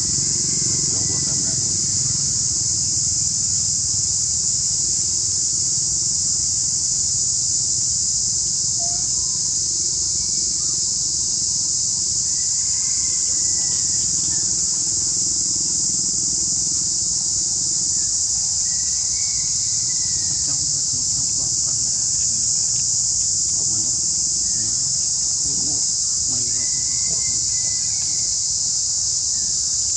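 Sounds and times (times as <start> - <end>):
low outdoor rumble: 0.0 - 4.6
high-pitched insect chorus: 0.0 - 29.9.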